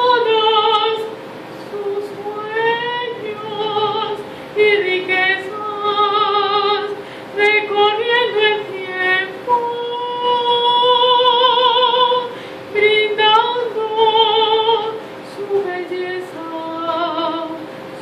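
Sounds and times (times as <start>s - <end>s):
woman singing with vibrato: 0.0s - 17.7s.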